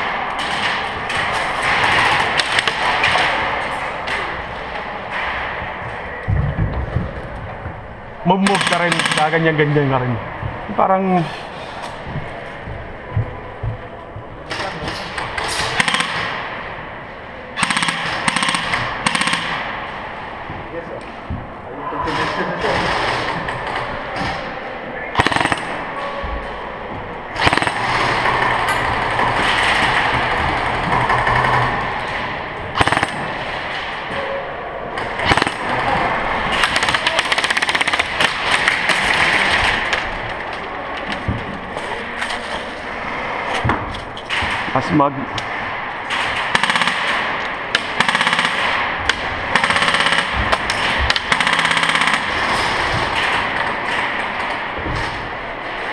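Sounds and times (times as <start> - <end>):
airsoft rifles firing full-auto: 0.0 - 4.2, 8.4 - 9.5, 14.5 - 16.6, 17.6 - 19.8, 25.2 - 25.9, 27.4 - 34.0, 35.0 - 40.1, 46.0 - 54.6.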